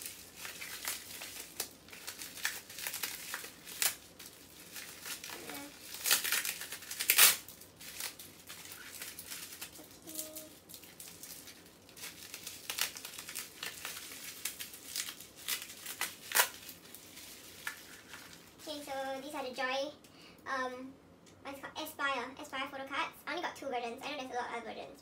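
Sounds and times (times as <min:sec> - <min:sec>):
bubble wrap crinkling: 0:00.0 - 0:19.4.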